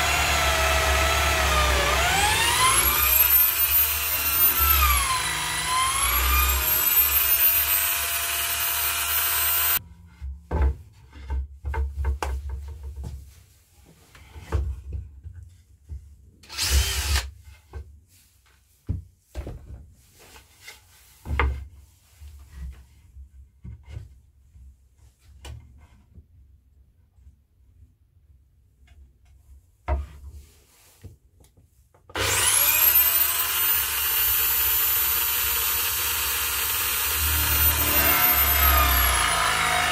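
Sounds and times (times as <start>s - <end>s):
power drill motor whine: 0.0s - 9.8s, 16.5s - 17.2s, 32.2s - 39.9s.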